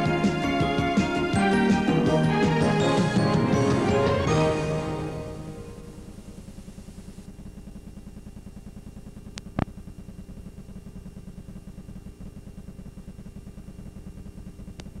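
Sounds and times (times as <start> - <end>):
low pulsing hum: 4.8 - 15.0.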